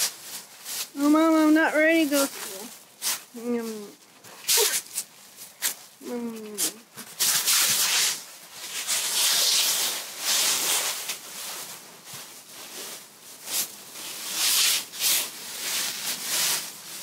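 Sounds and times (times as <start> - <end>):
dry leaves rustling: 0.0 - 6.3, 7.2 - 17.0.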